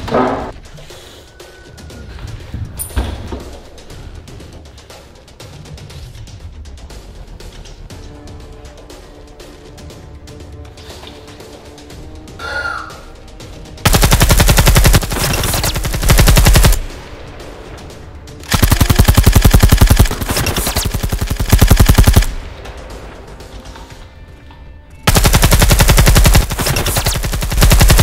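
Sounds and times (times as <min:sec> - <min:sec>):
machine-gun fire bursts: 0:13.8 - 0:17.0, 0:18.4 - 0:22.4, 0:25.1 - 0:28.0.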